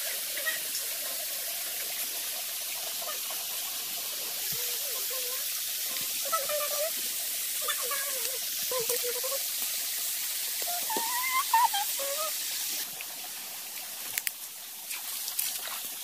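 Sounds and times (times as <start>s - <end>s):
stream trickling over rocks: 0.0s - 16.0s
faint wavering calls: 10.6s - 12.4s.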